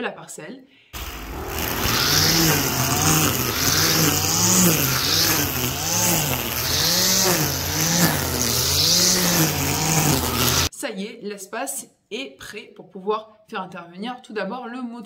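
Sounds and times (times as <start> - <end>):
brushcutter engine revving: 1.0 - 10.7
trimmer line cutting grass: 1.0 - 10.7.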